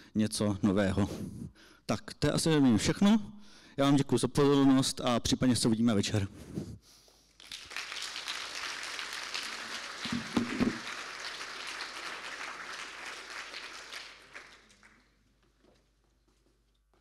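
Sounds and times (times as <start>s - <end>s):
audience clapping: 7.4s - 15.6s.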